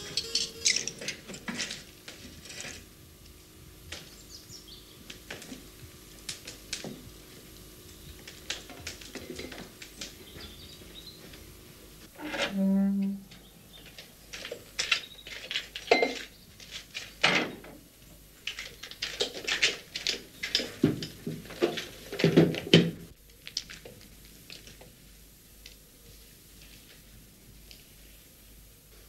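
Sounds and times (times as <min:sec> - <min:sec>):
hard objects clattering: 0:00.0 - 0:02.9, 0:07.9 - 0:10.6.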